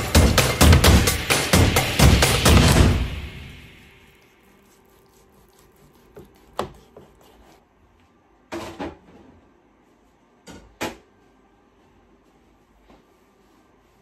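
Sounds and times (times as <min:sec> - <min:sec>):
knife slicing on cutting board: 0:03.9 - 0:07.6.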